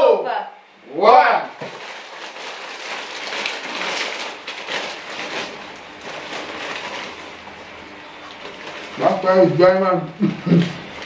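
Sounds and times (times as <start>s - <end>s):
plastic snack packets crinkling: 1.6s - 9.8s.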